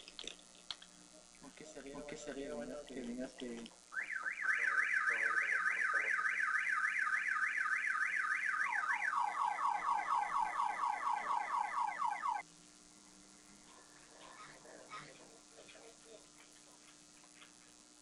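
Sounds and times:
electronic alarm siren warbling: 0:03.9 - 0:12.4.

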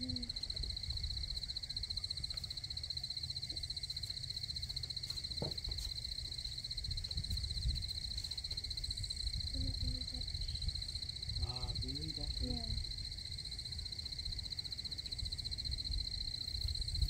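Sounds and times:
soft knock: 0:05.4 - 0:05.9
low rumble: 0:06.7 - 0:12.9.

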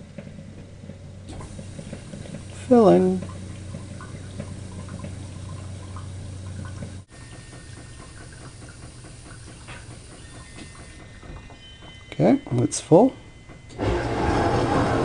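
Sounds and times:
low hum: 0:00.0 - 0:15.0
water hissing into dishwasher: 0:01.3 - 0:11.7.

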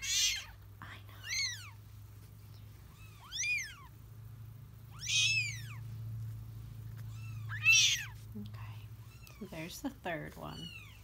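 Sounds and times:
kittens mewing: 0:00.0 - 0:01.8, 0:02.8 - 0:04.1, 0:04.8 - 0:05.9, 0:06.9 - 0:09.6.

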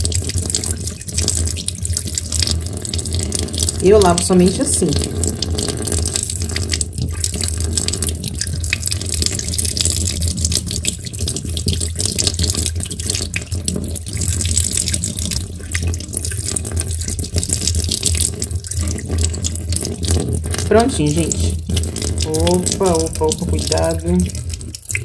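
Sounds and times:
tap water splashing into a sink: 0:00.0 - 0:25.0.

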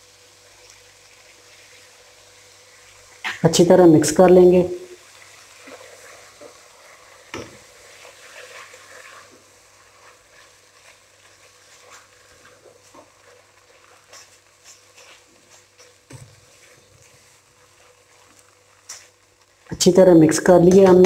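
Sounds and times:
faint sizzle: 0:00.0 - 0:21.0
spatula scraping a pot: 0:05.6 - 0:19.1.

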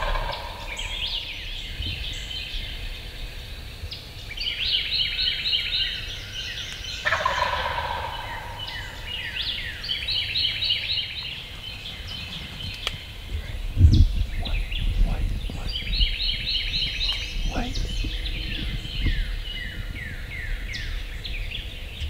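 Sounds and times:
turkey gobbling: 0:00.0 - 0:01.1, 0:07.0 - 0:09.0.

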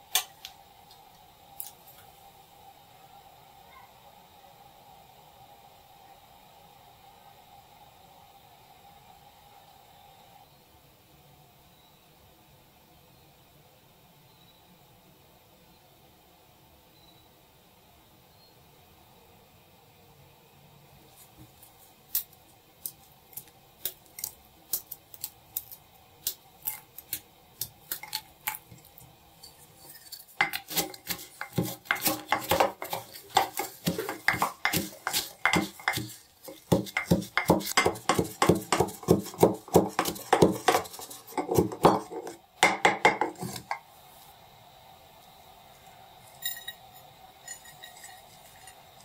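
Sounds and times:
utensil scraping in bowl: 0:26.6 - 0:42.4, 0:43.1 - 0:43.8
metal utensil clinking on dish: 0:46.4 - 0:49.0.

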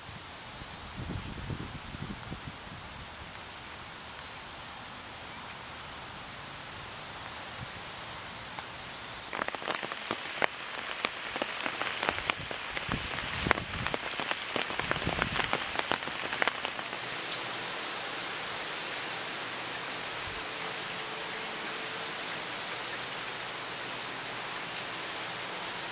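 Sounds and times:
rain falling on wet pavement: 0:00.0 - 0:25.9
raindrops splashing: 0:08.5 - 0:25.9.

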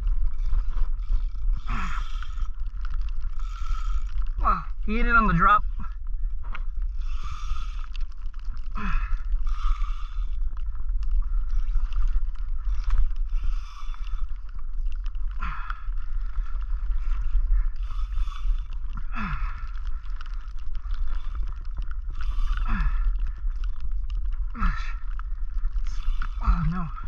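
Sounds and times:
wind rumbling on microphone: 0:00.0 - 0:27.0
fishing reel cranking: 0:00.2 - 0:02.6, 0:03.2 - 0:04.4, 0:07.0 - 0:08.0, 0:09.4 - 0:10.4, 0:17.2 - 0:18.7.

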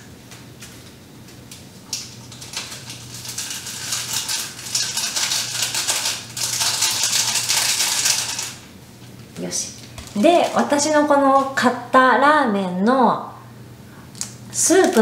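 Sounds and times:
foil packet crinkling and rattling: 0:01.5 - 0:08.7, 0:09.8 - 0:11.6, 0:14.6 - 0:15.0.

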